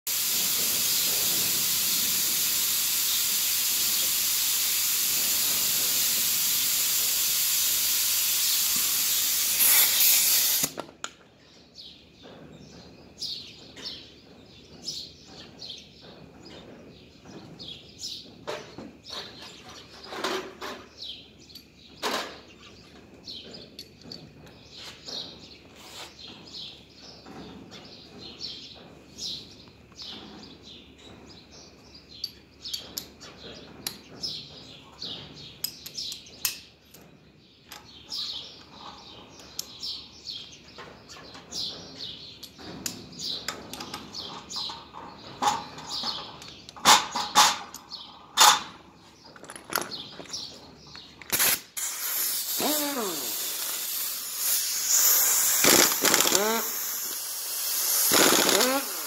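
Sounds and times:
loud steady hiss: 0.1s - 10.9s, 51.3s - 59.0s
small birds chirping: 11.2s - 59.0s.

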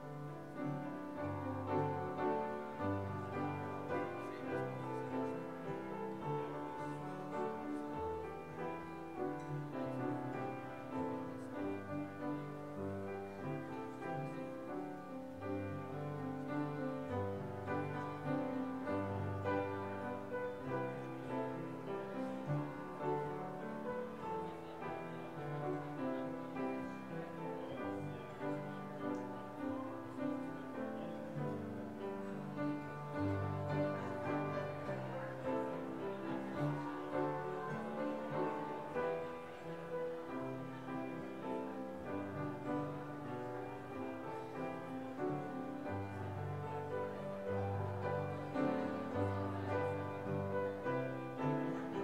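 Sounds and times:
slow piano chords: 0.0s - 52.0s.

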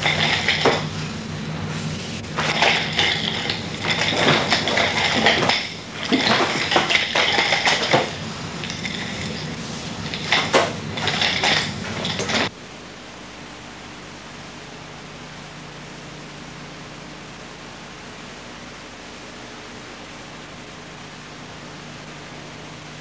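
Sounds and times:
chain rattling and clinking: 0.0s - 0.9s, 2.4s - 12.5s.

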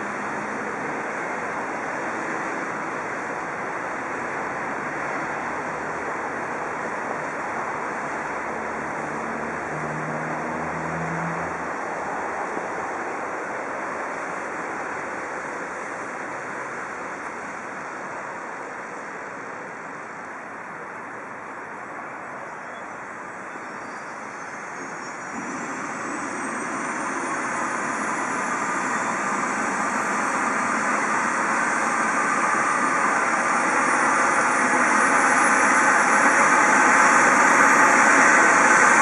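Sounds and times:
helicopter turbine whine: 0.0s - 9.9s, 23.0s - 39.0s
steady rushing noise: 0.0s - 22.4s, 23.0s - 39.0s.

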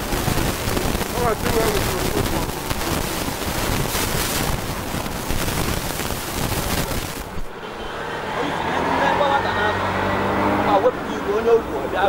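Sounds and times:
wind rumbling on microphone: 0.0s - 7.5s
street noise: 0.0s - 12.0s
traffic: 0.0s - 12.0s.

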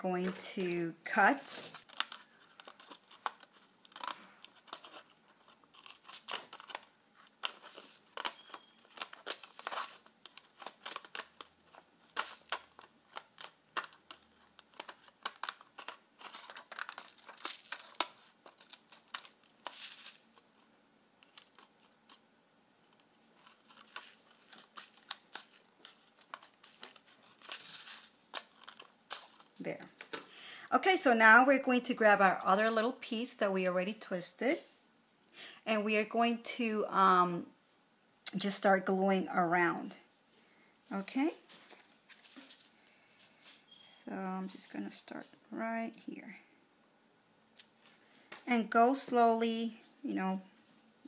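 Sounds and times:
plastic sheet crinkling: 0.0s - 22.2s, 22.8s - 30.4s, 41.0s - 43.6s.

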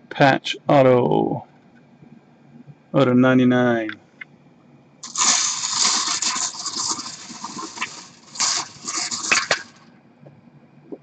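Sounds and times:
bingo balls rattling in wire cage: 5.0s - 9.8s.

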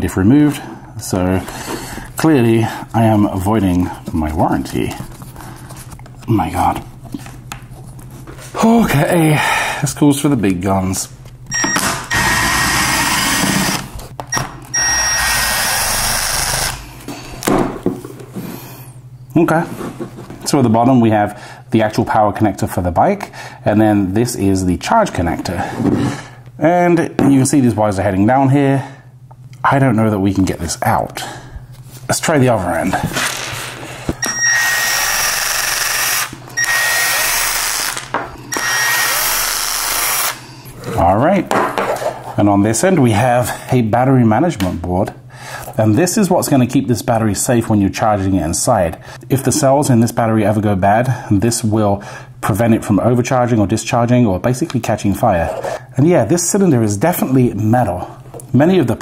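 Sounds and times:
cordless drill whining: 11.5s - 13.9s, 14.7s - 16.8s, 34.2s - 40.4s
impact driver running: 11.5s - 13.9s, 14.7s - 16.9s, 34.2s - 40.4s.

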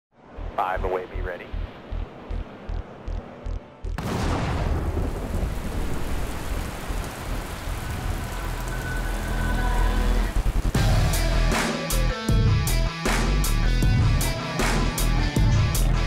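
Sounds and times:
low thumps: 1.4s - 5.4s
thunder-like rumbling rush: 4.0s - 11.1s.

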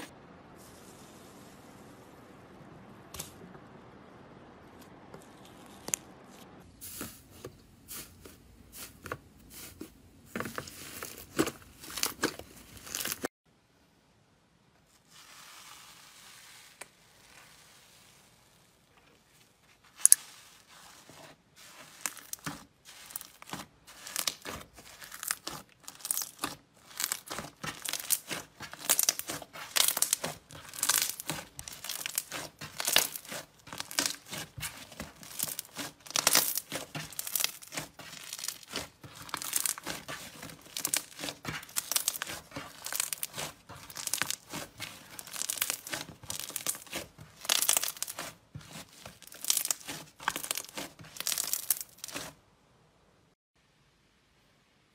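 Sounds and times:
slime crackling and popping: 11.1s - 13.3s, 21.8s - 52.4s.

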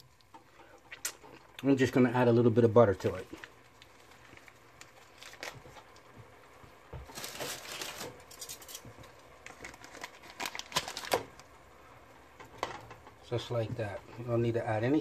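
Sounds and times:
sauce simmering in a pot: 0.0s - 7.1s
rustle of handling: 3.1s - 11.3s.

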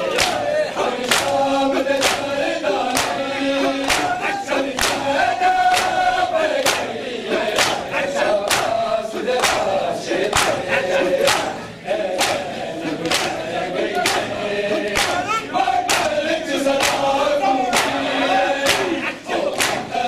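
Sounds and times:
men chanting in unison: 0.0s - 20.0s
hands beating chests: 0.1s - 20.0s.

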